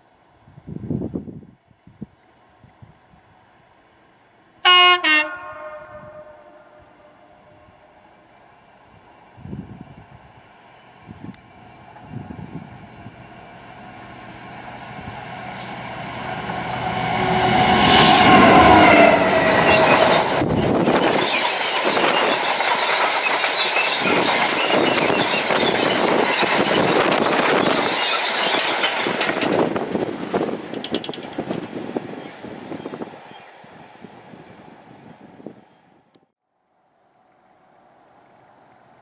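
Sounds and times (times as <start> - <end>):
diesel locomotive engine passing: 3.2 - 35.9
wheels clattering over rail joints: 19.3 - 31.8.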